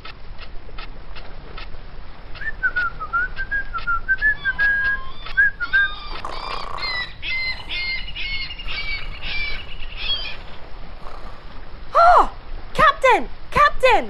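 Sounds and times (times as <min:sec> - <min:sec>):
birds chirping and squawking: 0:02.2 - 0:11.9
whistled tune: 0:02.4 - 0:06.2.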